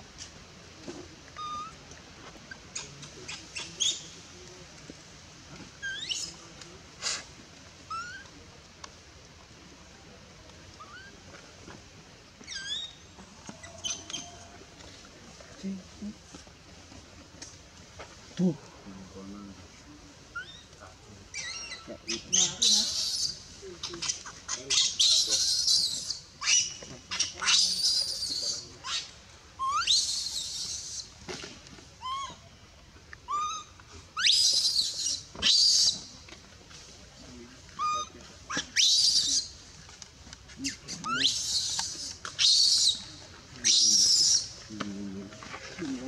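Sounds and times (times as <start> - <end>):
baby monkey screaming: 7.9 - 8.2, 21.3 - 23.4, 24.0 - 31.1, 32.0 - 32.4, 33.3 - 36.1, 37.8 - 39.5, 41.0 - 44.5.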